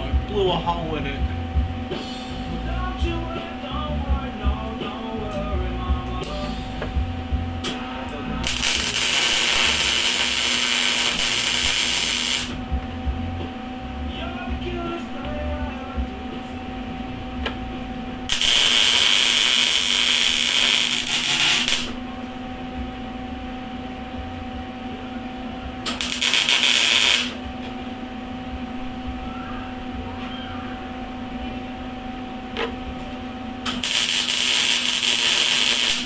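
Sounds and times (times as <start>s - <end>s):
steady welder hum: 0.0s - 36.0s
welding arc crackling and hissing: 4.5s - 15.0s, 17.1s - 24.6s, 25.8s - 27.9s, 33.6s - 36.0s.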